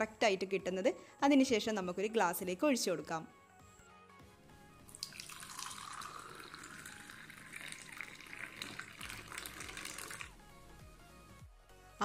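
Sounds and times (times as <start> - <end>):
tea pouring into a glass: 4.8 - 10.4.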